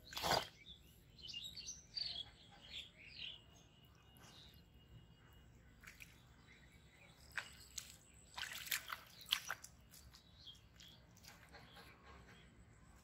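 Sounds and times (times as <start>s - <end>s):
wet mud squelches and splats: 0.0s - 0.7s, 7.1s - 11.6s.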